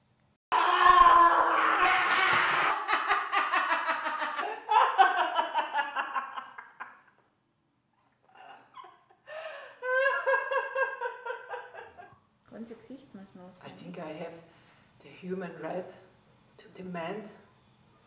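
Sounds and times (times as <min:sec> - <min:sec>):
woman laughing hard: 0:01.6 - 0:07.1, 0:08.3 - 0:12.1.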